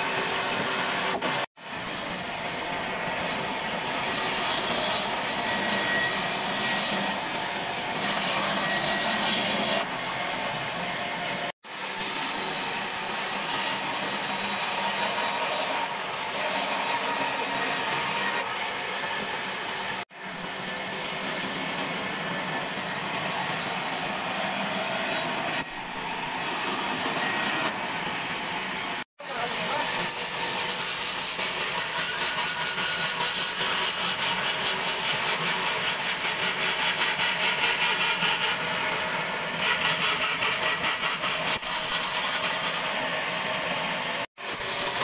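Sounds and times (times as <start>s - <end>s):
bandsaw cutting wood: 2.4s - 9.9s, 11.7s - 19.1s, 29.3s - 43.8s.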